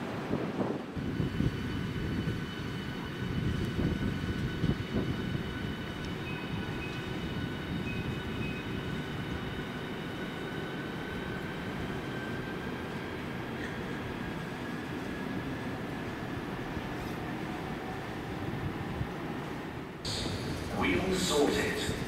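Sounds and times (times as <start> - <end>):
wheels rumbling on rails: 0.0 - 22.0.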